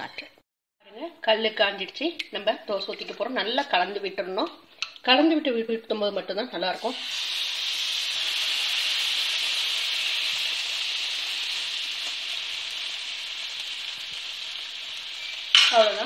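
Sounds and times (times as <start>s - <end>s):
batter sizzling on a griddle: 6.9s - 16.0s.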